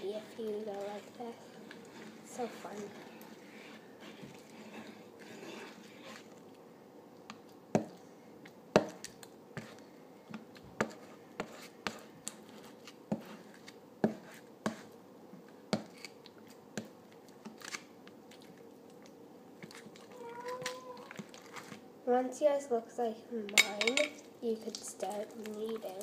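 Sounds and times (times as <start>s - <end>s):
metal spoon stirring slime: 0.0s - 6.4s, 8.8s - 14.9s, 23.6s - 26.0s.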